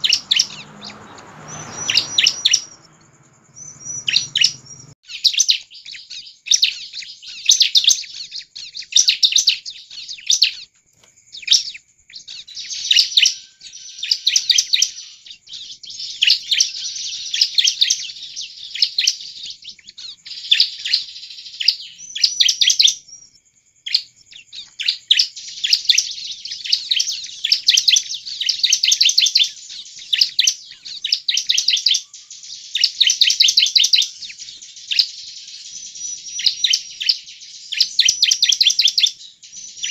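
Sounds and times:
bird chattering trills: 0:00.0 - 0:10.7.

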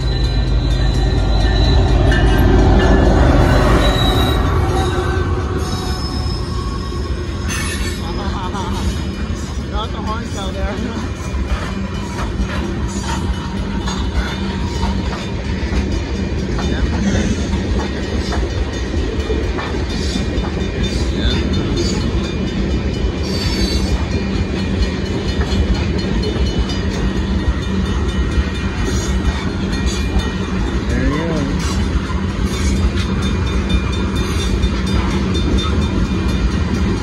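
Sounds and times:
freight train wheels rumbling: 0:00.0 - 0:37.0
clickety-clack over rail joints: 0:07.4 - 0:37.0.

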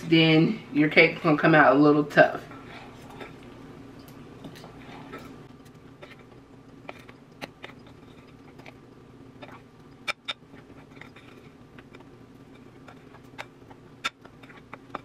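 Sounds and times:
spoon scraping and squelching batter: 0:02.4 - 0:03.8, 0:04.4 - 0:15.0.

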